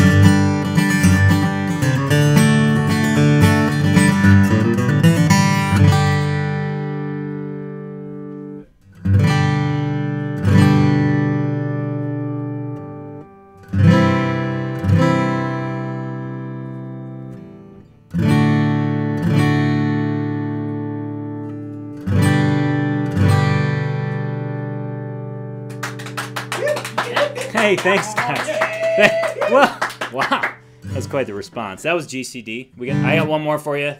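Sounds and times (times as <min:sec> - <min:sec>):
acoustic guitar strummed chords: 0:00.0 - 0:26.5, 0:27.6 - 0:33.9
applause: 0:25.7 - 0:30.7.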